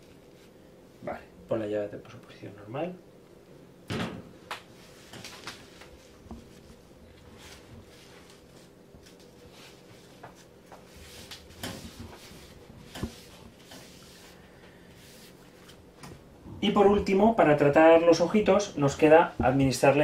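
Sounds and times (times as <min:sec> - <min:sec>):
faint steady hum: 0:00.0 - 0:20.0
tissue wiping: 0:04.8 - 0:15.8.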